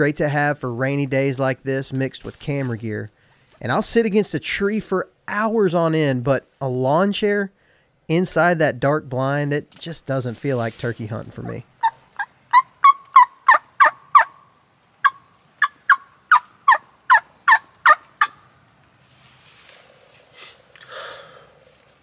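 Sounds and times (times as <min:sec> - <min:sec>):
faint rustling: 0:09.7 - 0:11.6, 0:18.8 - 0:20.8
turkey yelps on mouth call: 0:11.8 - 0:18.4.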